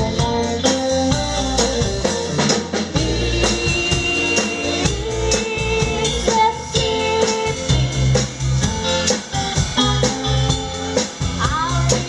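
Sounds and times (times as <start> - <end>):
woman singing: 0.0 - 2.3, 2.9 - 8.2, 10.1 - 12.0
live band music: 0.0 - 12.0.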